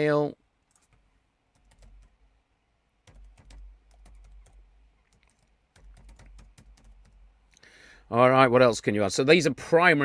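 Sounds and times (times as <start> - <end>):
faint typing on keyboard: 0.6 - 2.2, 3.0 - 7.7.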